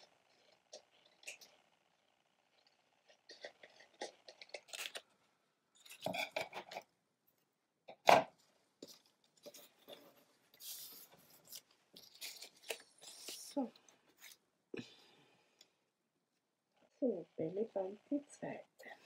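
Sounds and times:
scissors snipping paper: 0:03.3 - 0:05.0
paper strips rustling: 0:08.8 - 0:14.4.

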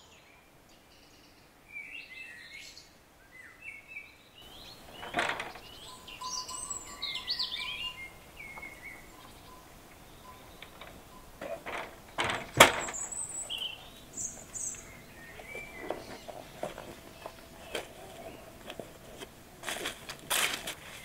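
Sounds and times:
bird chirps: 0:00.0 - 0:18.6
dry leaves crunching underfoot: 0:12.8 - 0:21.0
footsteps in leather shoes: 0:14.3 - 0:21.0.

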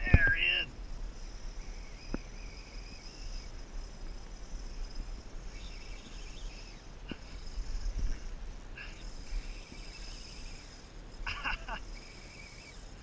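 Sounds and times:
fishing reel drag screaming: 0:00.0 - 0:13.0.

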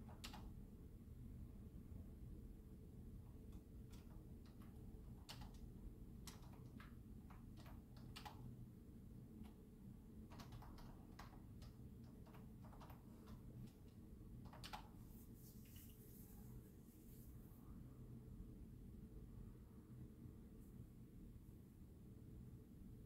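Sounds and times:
typing on a computer keyboard: 0:00.0 - 0:00.6, 0:03.5 - 0:08.6, 0:09.4 - 0:15.0
low room hum: 0:00.0 - 0:23.0.

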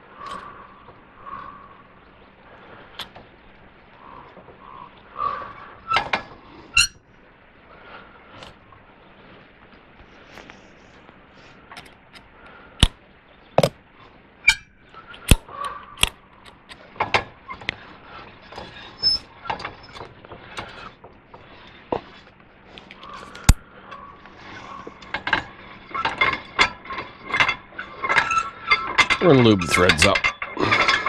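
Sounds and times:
hand tool clicking on metal rod: 0:15.2 - 0:15.4.

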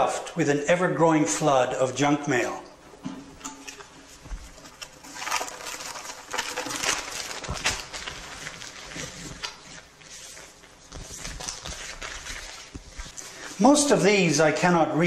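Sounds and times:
paper leaflets rustling: 0:03.7 - 0:14.2.

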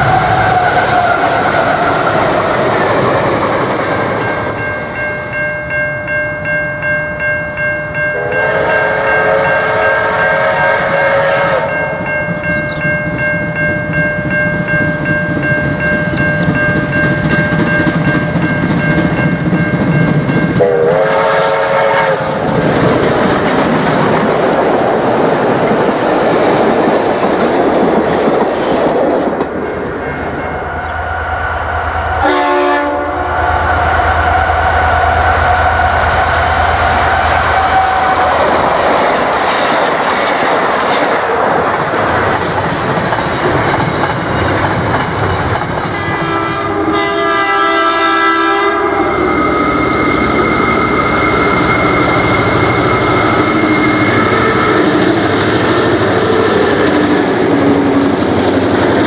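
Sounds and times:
diesel freight train passing: 0:00.0 - 0:59.0
steam locomotive exhaust beats: 0:08.1 - 0:59.0
steam whistle blasts: 0:08.2 - 0:11.8, 0:20.6 - 0:22.4, 0:32.0 - 0:38.5, 0:46.0 - 0:55.1.

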